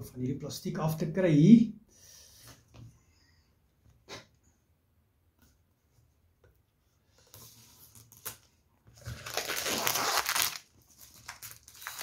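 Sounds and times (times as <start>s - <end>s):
plastic shrink-wrap tearing and crinkling: 7.9s - 12.0s.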